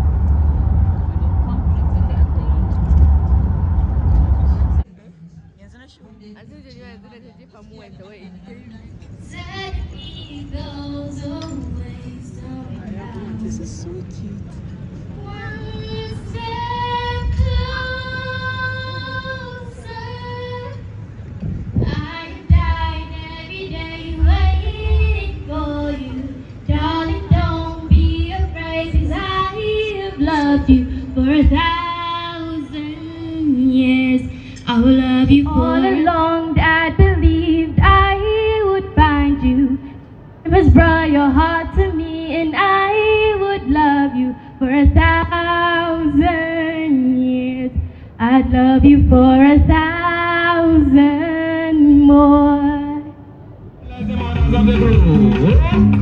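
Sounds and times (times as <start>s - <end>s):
woman singing into a microphone: 21.8s - 53.2s
amplified backing music: 53.9s - 56.0s.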